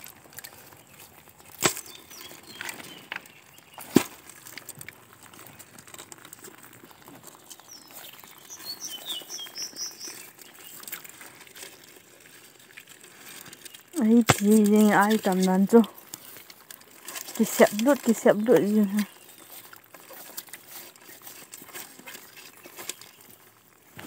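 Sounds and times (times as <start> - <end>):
stones knocking and scraping: 0.0 - 24.0
bird chirping: 0.7 - 4.0, 7.5 - 10.9.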